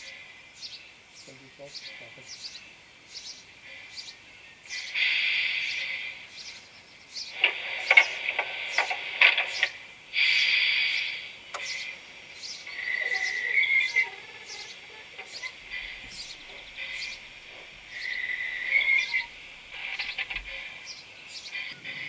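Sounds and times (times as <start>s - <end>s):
bird singing: 0.0s - 22.0s
steam hiss: 4.7s - 6.6s, 7.2s - 20.9s
steam locomotive chuffs: 7.3s - 22.0s.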